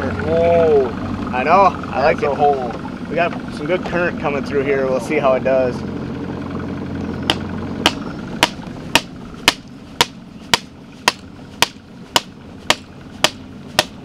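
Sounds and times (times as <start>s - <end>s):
hammer striking pole: 7.3s - 14.0s.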